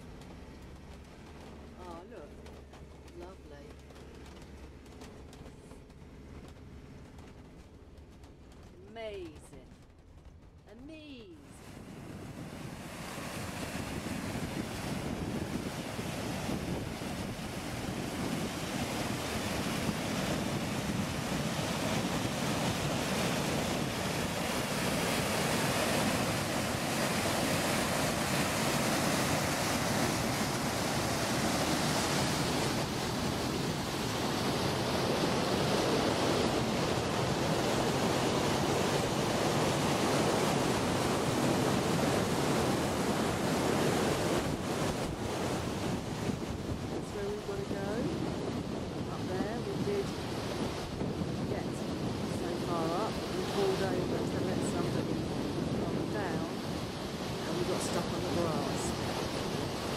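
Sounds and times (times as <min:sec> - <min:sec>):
wind noise on microphone: 0:00.0 - 0:59.9
stream rushing over waterfall: 0:12.8 - 0:47.9, 0:49.0 - 0:59.9.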